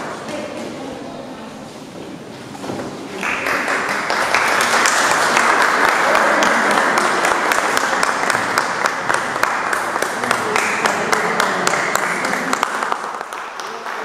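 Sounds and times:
audience applause: 3.1s - 14.0s.

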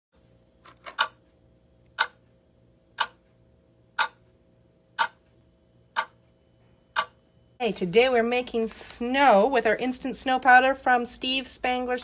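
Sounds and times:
clock ticking: 0.9s - 7.2s.

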